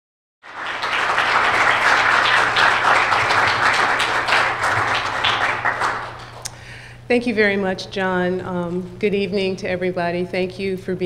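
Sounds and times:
audience applauding: 0:00.4 - 0:06.6.

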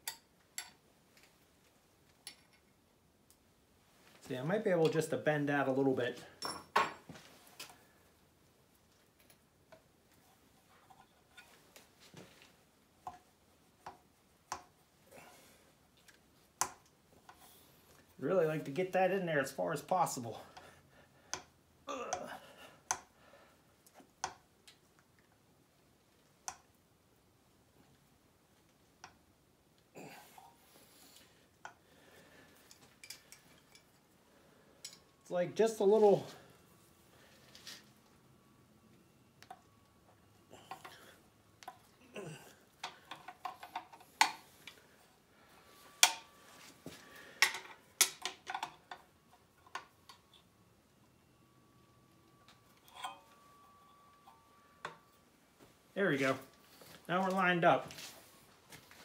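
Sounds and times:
metal tools clinking on engine block: 0:06.4 - 0:07.2, 0:52.4 - 0:55.1.

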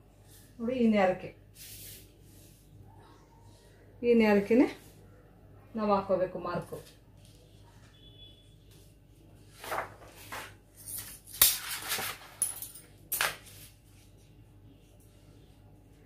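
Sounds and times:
paper rustling: 0:09.5 - 0:12.4.

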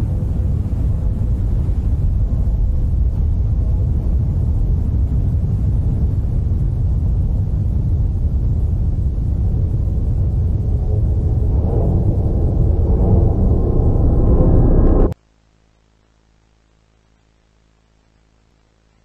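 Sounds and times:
low rumbling drone: 0:00.0 - 0:15.2
faint steady hum: 0:00.0 - 0:19.0.

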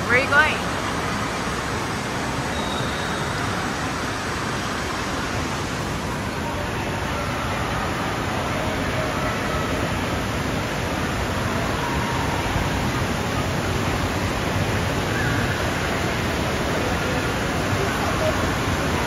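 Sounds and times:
rushing water roar: 0:00.0 - 0:19.0.

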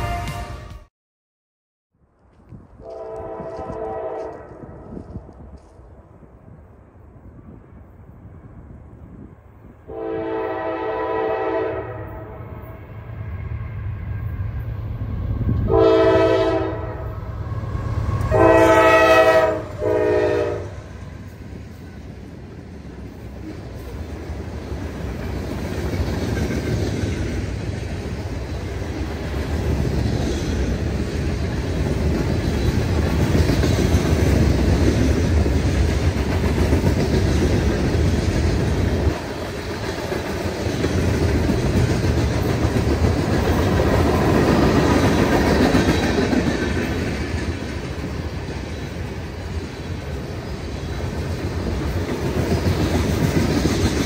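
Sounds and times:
locomotive air horn: 0:00.0 - 0:00.9, 0:02.8 - 0:04.8, 0:09.9 - 0:12.6, 0:15.6 - 0:17.3, 0:18.2 - 0:20.9
train rumbling past: 0:02.2 - 0:54.0.

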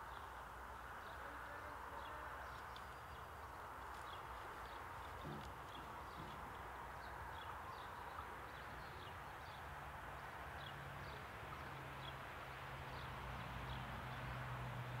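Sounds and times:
small birds chirping: 0:01.9 - 0:12.2.

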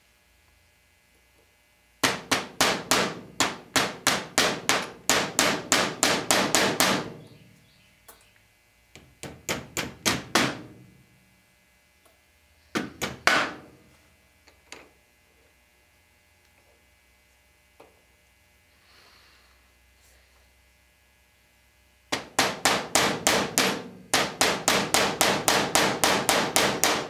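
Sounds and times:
hammer tapping metal punch: 0:02.0 - 0:07.3, 0:22.1 - 0:27.0.

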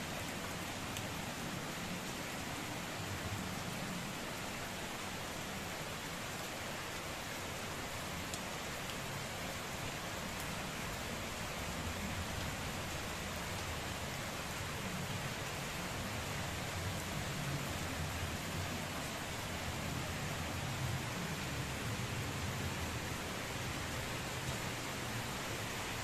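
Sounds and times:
heavy rain falling: 0:00.0 - 0:26.0
raindrop ticks: 0:08.3 - 0:09.0.

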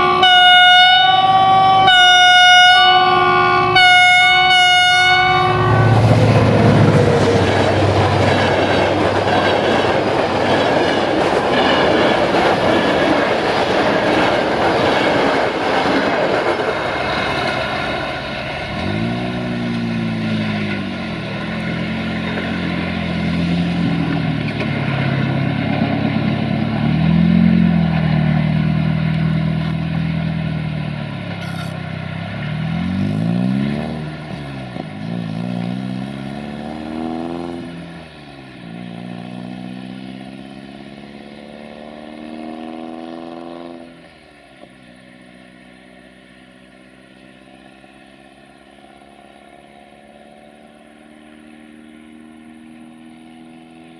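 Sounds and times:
train droning pulling away: 0:00.0 - 0:42.4, 0:43.8 - 0:53.9
passenger coaches rushing past: 0:05.2 - 0:18.8
wheels clattering over rail joints: 0:05.9 - 0:36.4.

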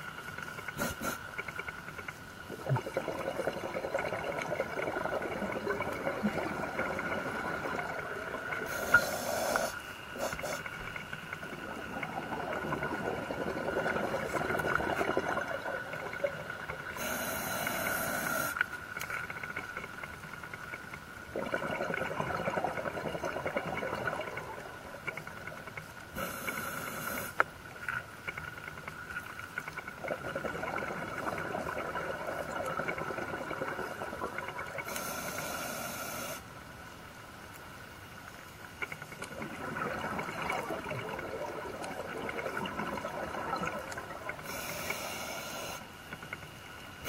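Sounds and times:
exhaled bubbles rushing: 0:02.5 - 0:09.0, 0:10.2 - 0:17.0, 0:21.2 - 0:25.7, 0:29.7 - 0:34.9, 0:39.0 - 0:44.6
diver breathing through regulator: 0:44.4 - 0:45.8.

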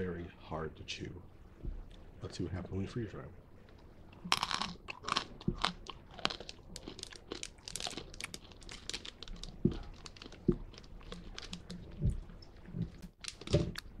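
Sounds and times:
soft low thumps: 0:01.5 - 0:02.1, 0:11.8 - 0:13.8
plastic pouch crinkling: 0:06.3 - 0:11.8, 0:13.0 - 0:13.9.

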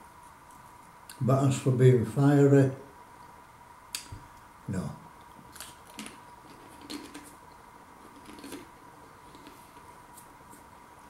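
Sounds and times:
crisps being chewed: 0:05.2 - 0:09.6.

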